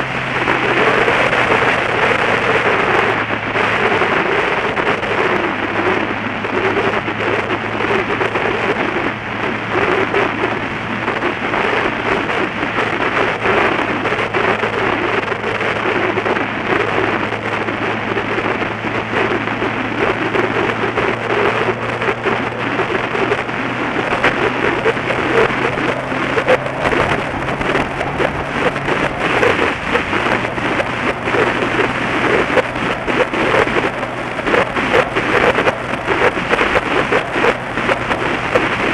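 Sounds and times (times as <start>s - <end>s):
motorcycle engine droning: 0.0s - 38.9s
wind buffeting microphone: 0.0s - 38.9s.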